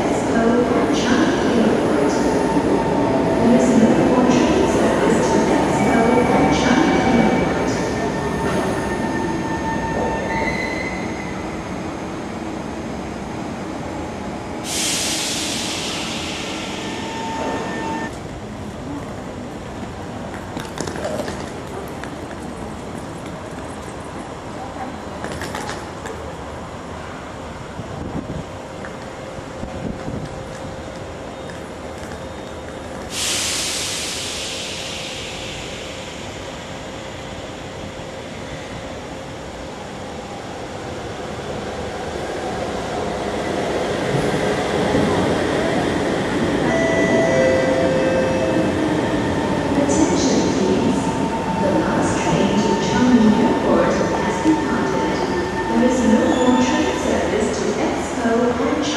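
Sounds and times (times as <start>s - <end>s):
metro train equipment humming: 0.0s - 20.6s, 21.5s - 58.9s
loud hiss of air: 14.6s - 18.1s, 33.1s - 37.9s.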